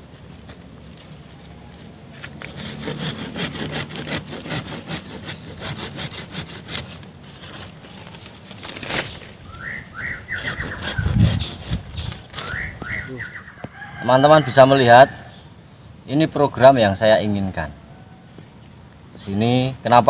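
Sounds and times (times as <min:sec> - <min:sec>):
branches rustling and snapping: 0:06.5 - 0:09.6, 0:10.3 - 0:13.4.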